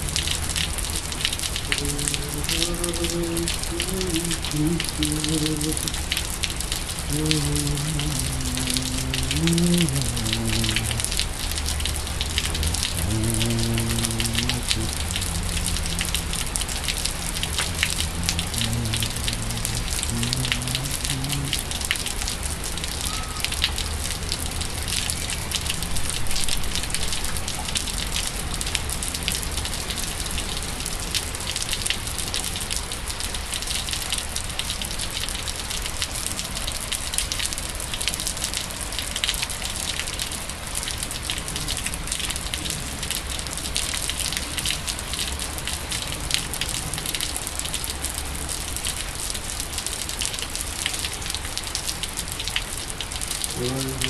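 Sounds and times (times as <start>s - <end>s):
rain on wet pavement: 0.0s - 54.0s
low hum shifting in pitch: 1.7s - 6.2s, 7.0s - 21.6s.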